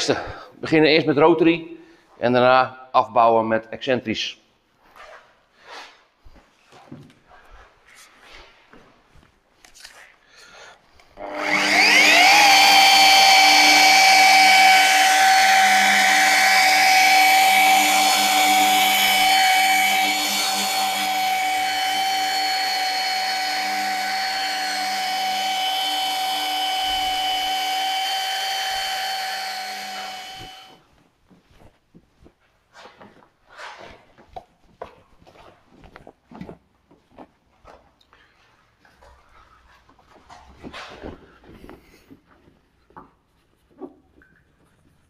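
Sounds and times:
rotary polisher whining: 0:11.2 - 0:30.8.

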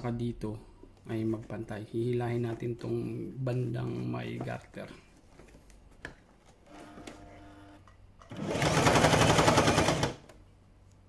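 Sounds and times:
faint hum: 0:00.0 - 0:08.4
sewing machine stitching: 0:08.3 - 0:10.3.

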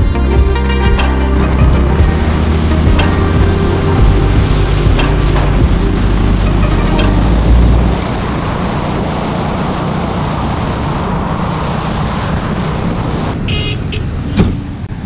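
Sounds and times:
high-pitched tone: 0:00.0 - 0:08.0
motorcycle engine rumble: 0:00.0 - 0:14.8
wind and road noise: 0:00.0 - 0:15.0.

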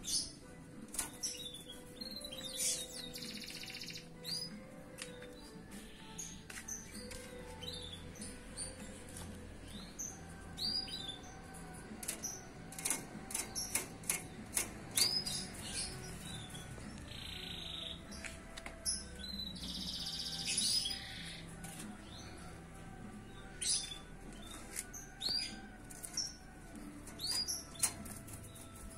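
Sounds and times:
canary chirping and trilling: 0:00.0 - 0:18.2, 0:18.8 - 0:22.6, 0:23.2 - 0:28.9
sharp clicks in aviary: 0:00.9 - 0:01.5, 0:12.0 - 0:15.9, 0:27.0 - 0:28.6.

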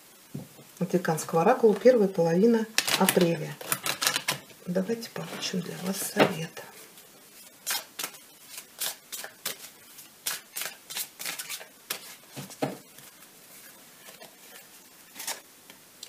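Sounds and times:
cards being shuffled: 0:02.8 - 0:04.5, 0:07.6 - 0:13.2.

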